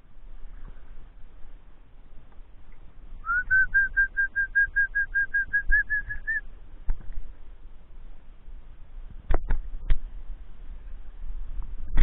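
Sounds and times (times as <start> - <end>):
short whistled notes: 3.2 - 6.4.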